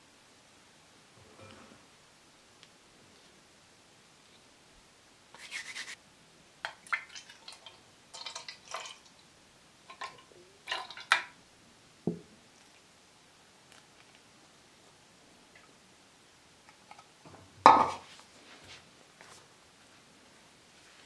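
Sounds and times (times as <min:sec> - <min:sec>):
hands rubbing flour in bowl: 0:05.4 - 0:06.0
milk pouring into plastic jug: 0:06.8 - 0:09.1, 0:09.9 - 0:11.3.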